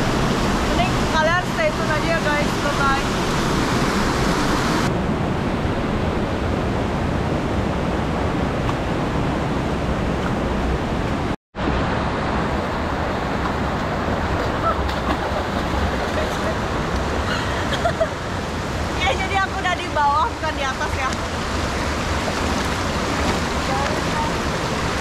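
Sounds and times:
waterfall rushing: 0.0s - 4.9s, 11.8s - 25.0s.

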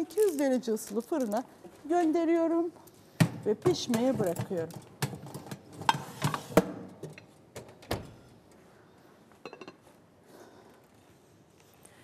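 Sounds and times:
cookware knocks and clatters: 9.5s - 9.8s.

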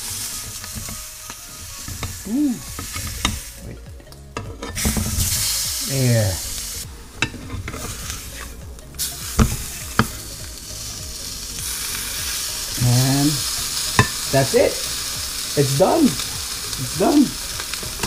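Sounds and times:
fish sizzling in frying pan: 0.0s - 18.0s
spatula tapping pan: 1.8s - 5.6s, 7.2s - 11.2s, 13.9s - 14.3s.

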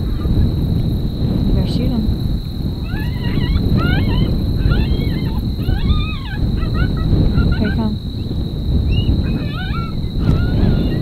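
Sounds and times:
coyote yips and howls: 0.0s - 0.6s, 2.8s - 11.0s
wind rumbling on microphone: 0.0s - 11.0s.

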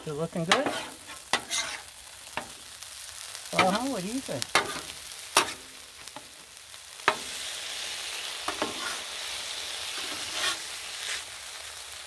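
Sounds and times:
food sizzling on a griddle: 0.0s - 12.0s
metal spatula scraping: 0.3s - 2.5s, 4.5s - 5.7s, 8.5s - 9.1s, 9.9s - 11.3s.

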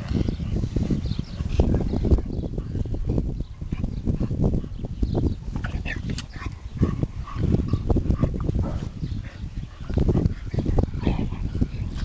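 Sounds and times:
dogs grunting and yipping: 5.4s - 12.0s.

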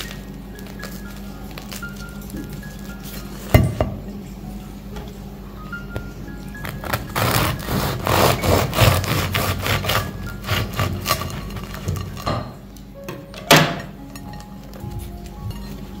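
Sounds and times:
knife sawing through bread crust: 6.9s - 11.4s.

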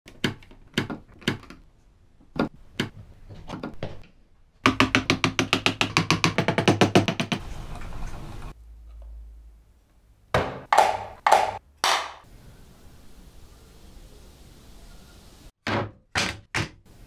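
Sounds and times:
wooden parts knocking and clicking: 0.1s - 7.5s.

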